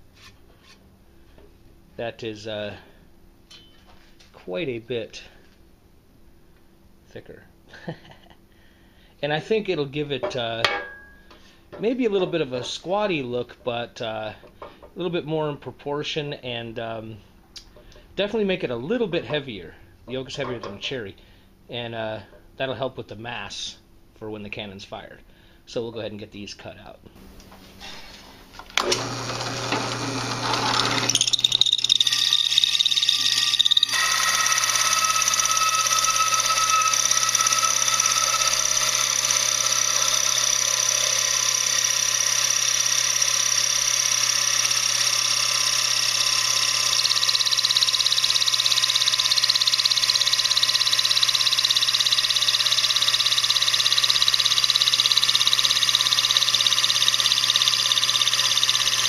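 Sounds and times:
drill press motor hum: 0:28.6 - 0:59.0
hole saw cutting wood: 0:28.8 - 0:59.0.

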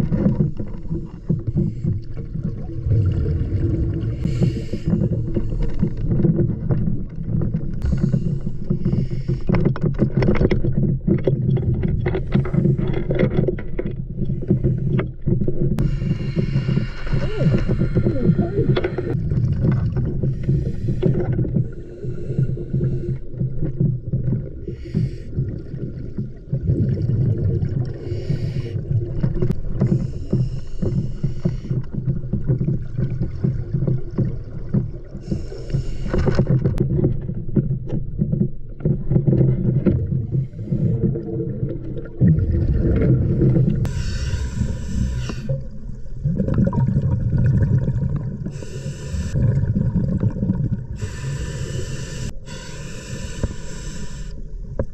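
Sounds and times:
gurgling exhaled bubbles: 0:00.0 - 0:13.5, 0:14.1 - 0:54.9
regulator hiss on inhale: 0:04.2 - 0:06.0, 0:07.8 - 0:09.6, 0:15.8 - 0:19.2, 0:20.3 - 0:23.3, 0:24.7 - 0:25.4, 0:28.0 - 0:28.8, 0:29.8 - 0:31.9, 0:35.2 - 0:36.6, 0:43.9 - 0:45.7, 0:48.5 - 0:49.4, 0:51.0 - 0:54.6.

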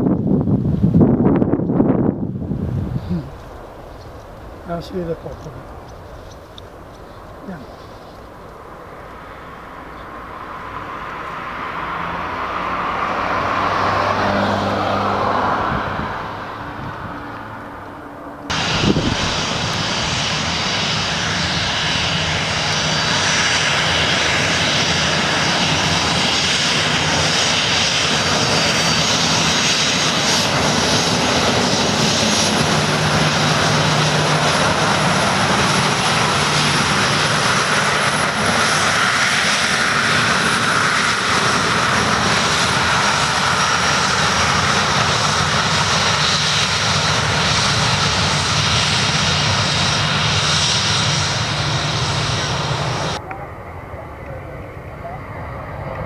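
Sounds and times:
jet engines rumbling with high whine: 0:00.0 - 0:56.0.

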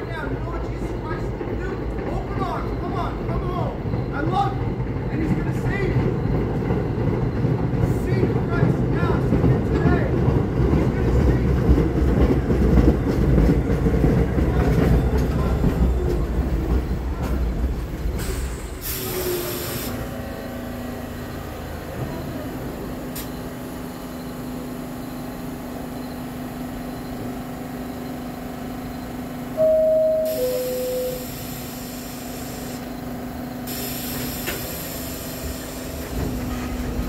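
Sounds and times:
train humming: 0:00.0 - 0:37.0
train wheels rumbling on rails: 0:00.0 - 0:37.0
train brake hiss: 0:18.2 - 0:20.1, 0:29.6 - 0:36.8.

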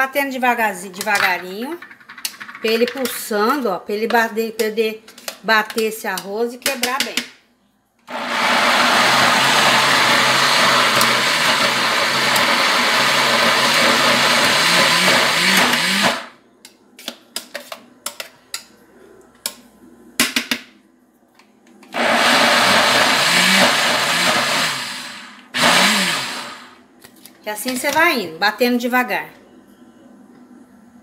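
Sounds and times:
countertop blender running: 0:08.1 - 0:16.3, 0:21.9 - 0:26.8.

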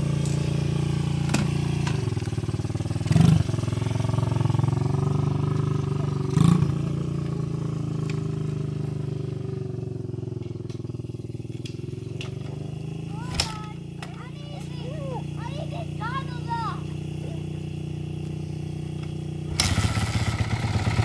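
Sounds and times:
dirt bike engines idling: 0:00.0 - 0:21.0
engine bursts: 0:11.6 - 0:21.0.

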